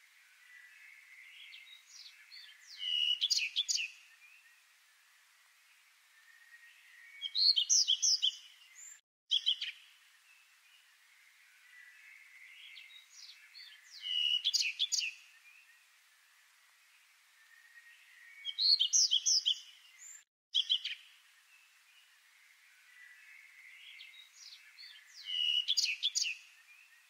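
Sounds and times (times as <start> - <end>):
faint steady hiss: 0.0 - 27.0
songbird warbling: 7.0 - 9.8, 22.9 - 26.4.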